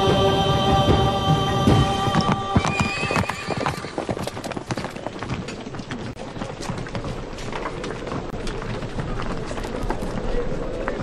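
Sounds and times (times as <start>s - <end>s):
camp bustle: 0.0s - 11.0s
hooves clip-clopping: 0.8s - 11.0s
horse neighing: 2.6s - 4.0s.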